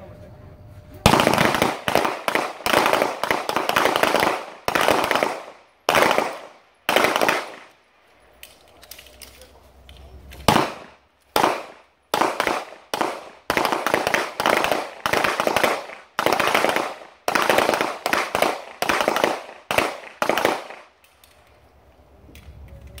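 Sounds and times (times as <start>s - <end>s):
handgun shots: 1.1s - 7.7s, 10.3s - 21.2s.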